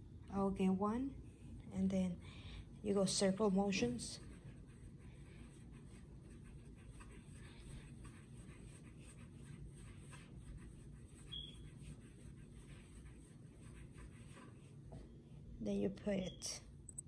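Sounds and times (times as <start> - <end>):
low room hum: 0.0 - 17.0
dough rubbing on cutting board: 3.8 - 14.9.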